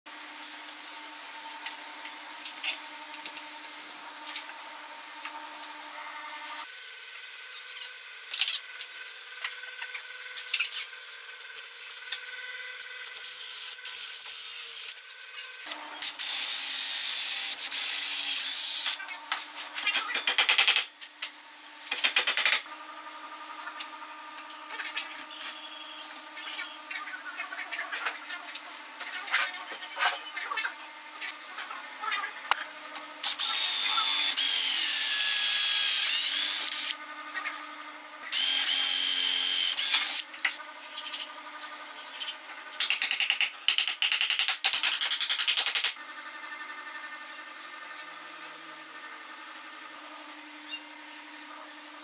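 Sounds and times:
cordless drill boring into wood: 13.2 - 15.0, 16.0 - 19.0, 33.2 - 37.0, 38.3 - 40.3.

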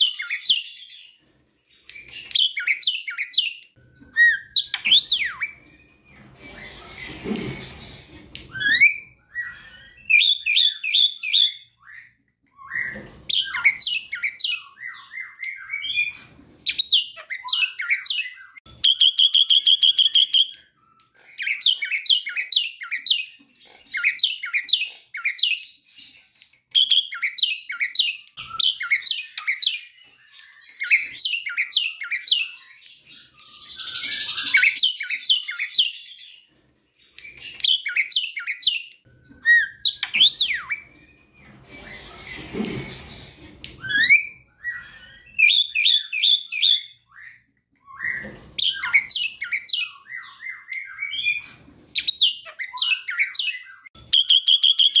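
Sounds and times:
myna whistled chirps: 43.8 - 55.0.

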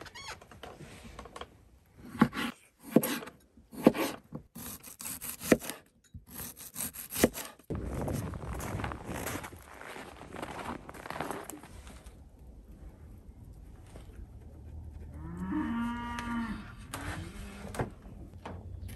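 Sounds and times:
knife slicing vegetables: 2.0 - 7.7.

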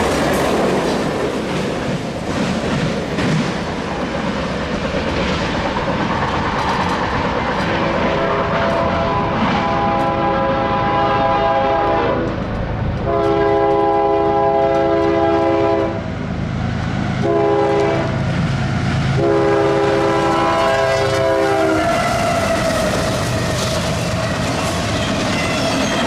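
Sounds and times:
train rumble: 0.0 - 26.0
locomotive air horn: 7.9 - 12.4, 13.0 - 16.0, 17.2 - 18.2, 19.2 - 23.2.

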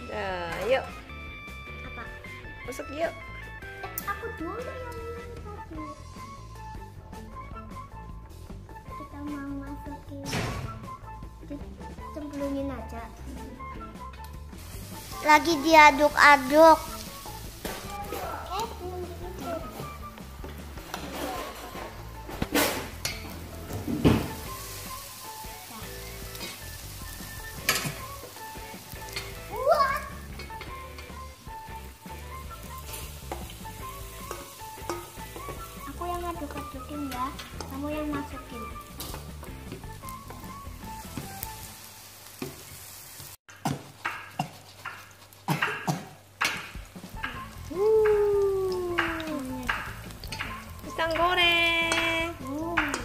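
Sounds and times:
food sizzling in hot oil: 0.0 - 53.0
utensils clinking: 20.5 - 25.2, 27.5 - 31.4, 32.8 - 39.5
metal spoons clinking on a bowl: 34.2 - 35.2.

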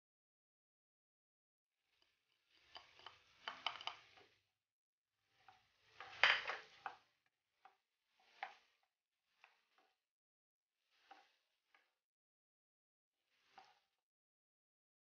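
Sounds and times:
spoon scraping and tapping a dish: 2.7 - 4.2
spatula scraping and knocking a pan: 5.3 - 10.0.

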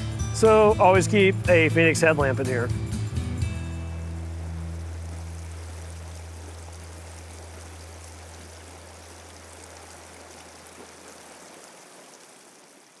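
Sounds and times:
stream rushing over stones: 3.7 - 13.0.

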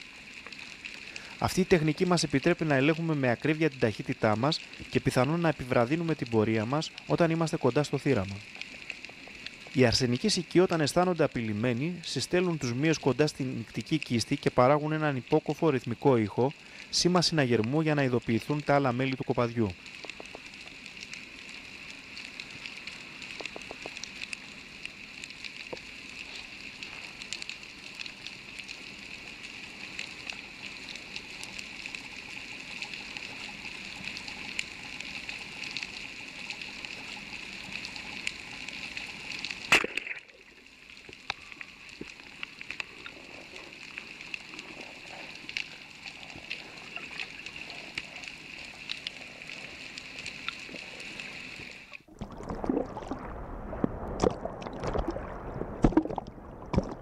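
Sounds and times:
underwater hiss with crackling clicks: 0.0 - 52.1
churning water and bubbles: 30.1 - 57.0.

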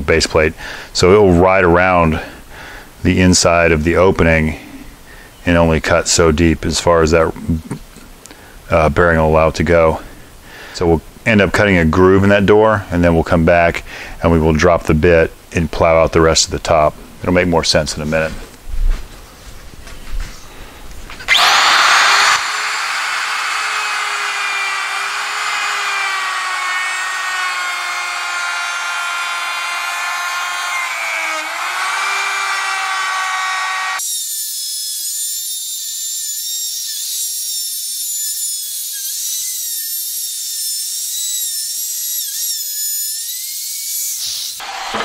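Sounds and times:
router whining cutting wood: 21.3 - 45.0.

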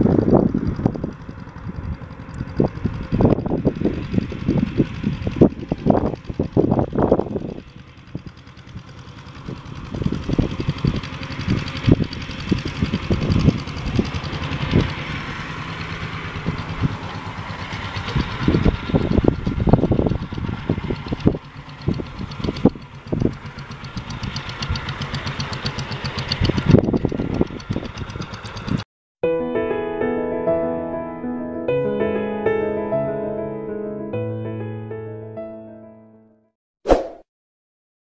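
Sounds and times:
diesel locomotive engine: 0.0 - 28.8.

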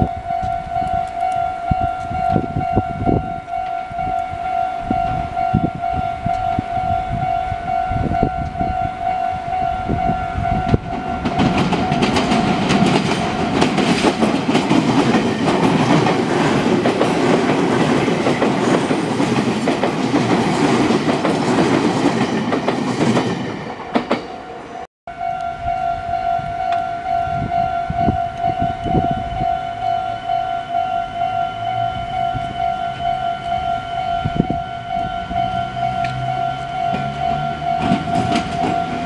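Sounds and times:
level crossing warning bell: 0.0 - 21.6, 23.2 - 39.0
train wheels clattering over rail joints: 10.7 - 24.4, 36.0 - 39.0.

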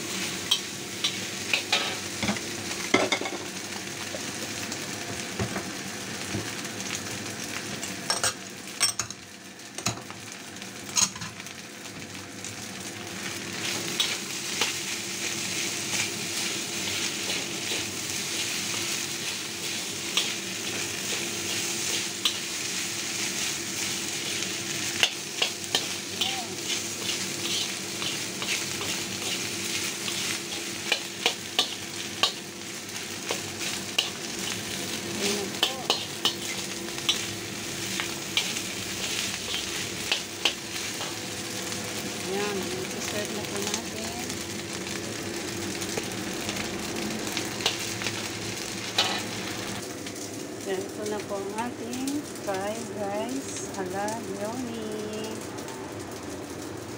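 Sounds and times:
fried rice sizzling in a wok: 0.0 - 56.9
metal spatula scraping a wok: 26.6 - 32.4, 38.4 - 41.2, 49.0 - 49.4.

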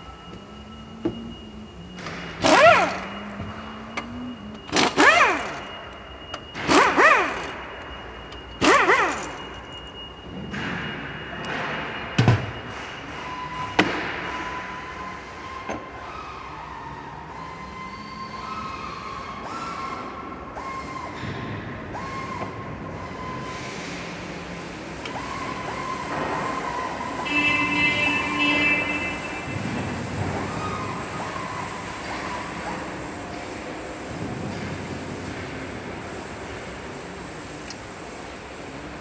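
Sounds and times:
steady machine hum: 0.0 - 20.4, 21.2 - 39.0
short machine whining bursts: 0.0 - 21.2, 22.0 - 33.2.

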